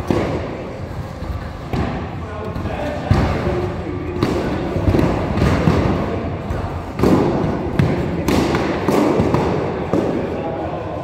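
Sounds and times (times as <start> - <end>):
padded swords thudding on shields: 4.1 - 10.2.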